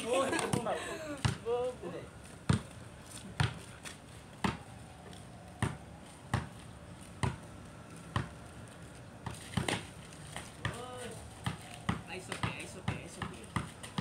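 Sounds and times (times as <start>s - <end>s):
basketball bouncing on concrete: 0.4s - 1.6s, 2.4s - 3.7s, 4.4s - 4.6s, 5.6s - 6.6s, 7.2s - 7.5s, 8.1s - 8.4s, 9.2s - 14.0s.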